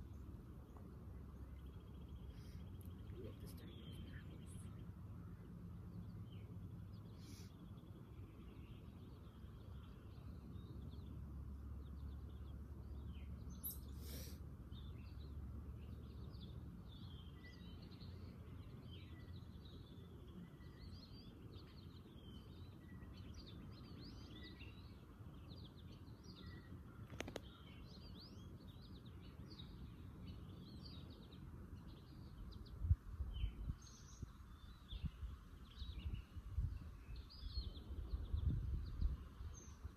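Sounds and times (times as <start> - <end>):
low outdoor rumble: 0.0 - 39.9
birds chirping and calling: 11.9 - 36.2.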